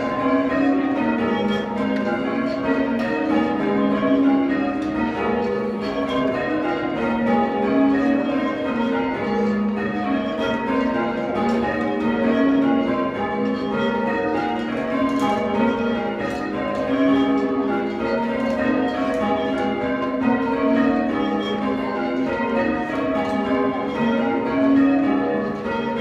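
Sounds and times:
church bells ringing: 0.0s - 26.0s.

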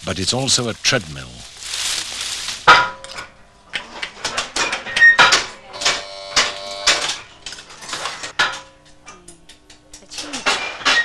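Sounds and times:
metal press parts clattering: 2.7s - 8.7s, 10.0s - 11.0s.

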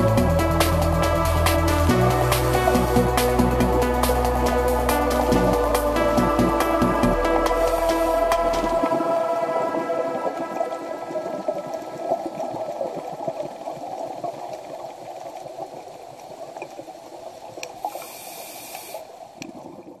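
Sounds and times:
underwater bubbling and gurgling: 0.0s - 20.0s
brief hiss: 17.8s - 19.1s.

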